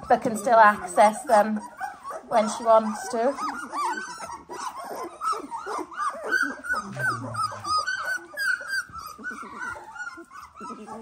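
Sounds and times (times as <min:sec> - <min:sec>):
puppies crying: 0:00.0 - 0:11.0.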